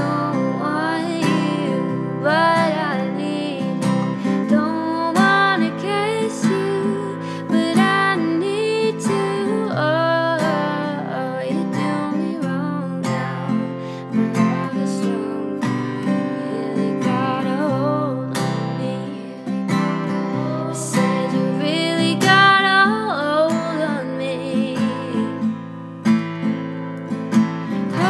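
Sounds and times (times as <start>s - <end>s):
strummed acoustic guitar: 0.0s - 28.0s.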